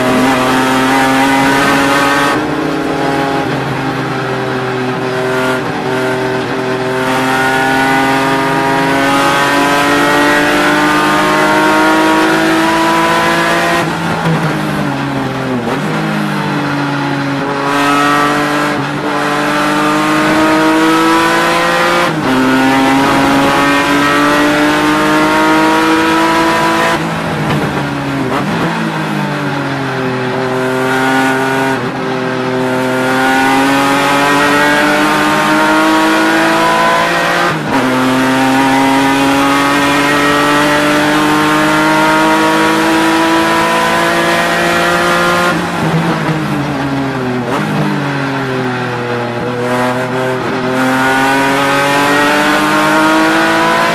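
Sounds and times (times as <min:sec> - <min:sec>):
race car engine revving: 0:00.0 - 0:53.9.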